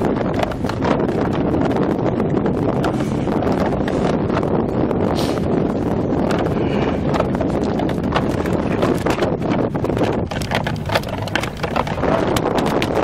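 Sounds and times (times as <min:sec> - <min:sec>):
wind buffeting microphone: 0:00.0 - 0:13.0
irregular clicks and knocks: 0:06.2 - 0:13.0.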